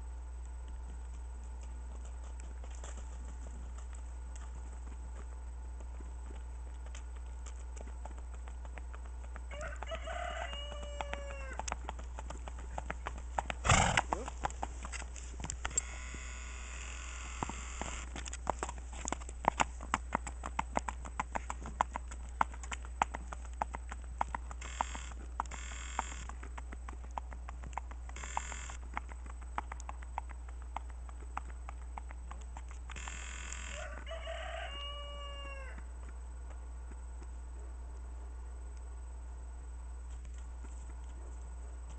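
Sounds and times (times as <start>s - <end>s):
horse hooves on paved road: 0.4s - 38.5s, 40.0s - 41.9s
rooster crowing: 9.5s - 11.8s, 33.6s - 35.8s.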